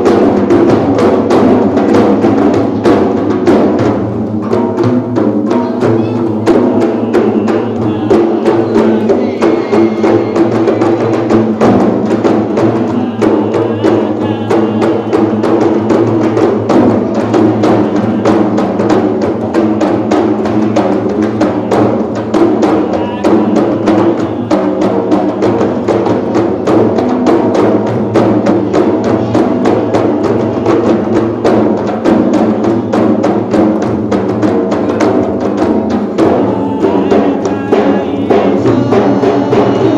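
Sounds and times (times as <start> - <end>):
frame drums playing fast rhythm: 0.0 - 39.9
man chanting: 5.6 - 26.2, 34.8 - 39.9.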